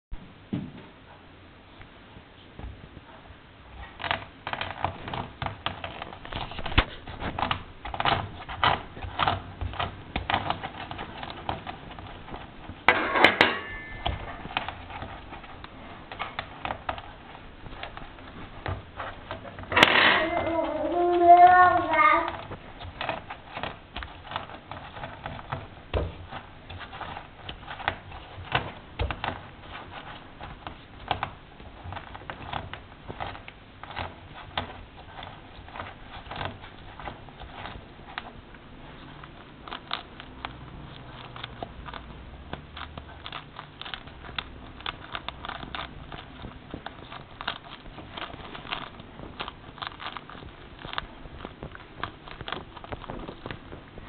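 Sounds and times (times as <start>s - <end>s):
pomegranate seeds crackling: 3.7s - 54.0s
rind rubbing on stone: 13.9s - 54.0s.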